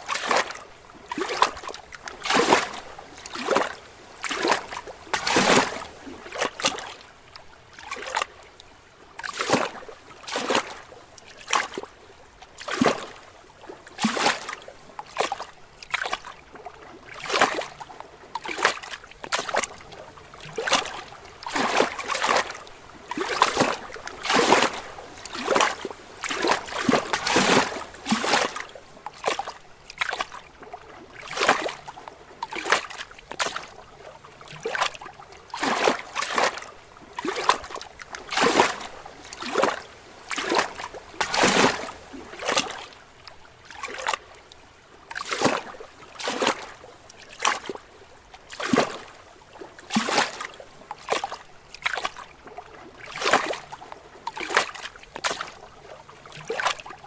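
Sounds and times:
waves splashing against rocks: 0.0 - 7.0, 17.2 - 30.4, 35.6 - 43.0.

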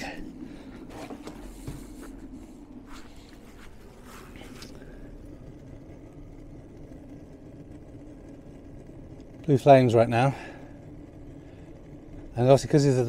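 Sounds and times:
faint rustles: 0.0 - 6.0
gas burner low rumble: 0.0 - 13.0.

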